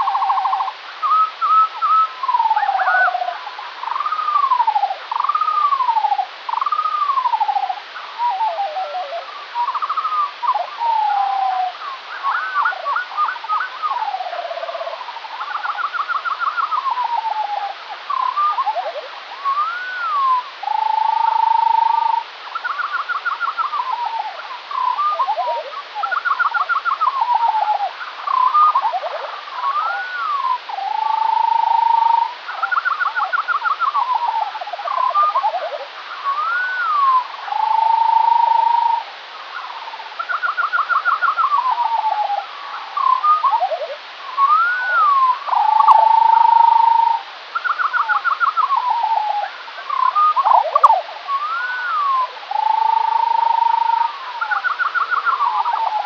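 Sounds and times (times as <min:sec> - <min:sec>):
slowed birdsong: 0:36.2 - 0:56.0.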